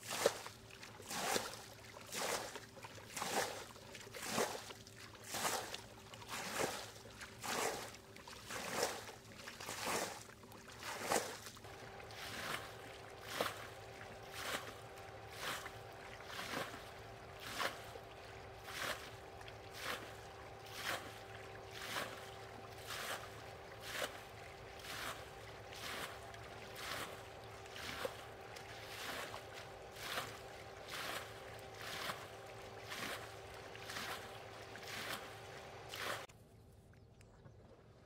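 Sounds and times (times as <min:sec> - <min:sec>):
water scooped and splashed: 0:00.0 - 0:36.3.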